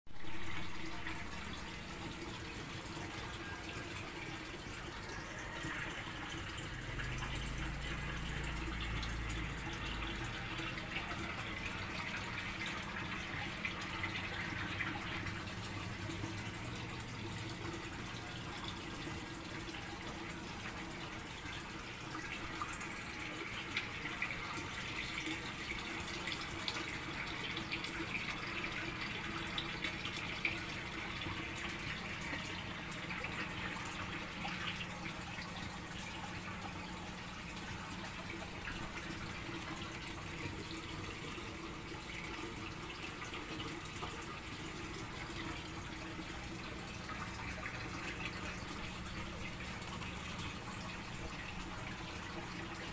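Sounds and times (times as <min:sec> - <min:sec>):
water running into a tank: 0:00.1 - 0:52.9
water drips and splashes: 0:00.2 - 0:52.9.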